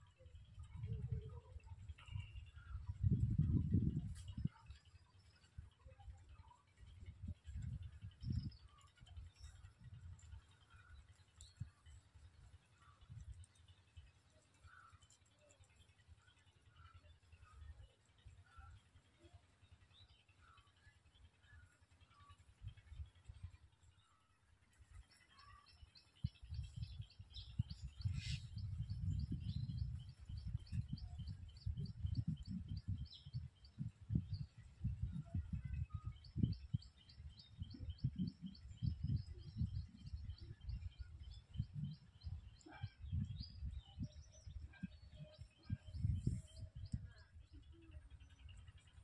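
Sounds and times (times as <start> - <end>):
bird chirping: 24.9 - 49.0.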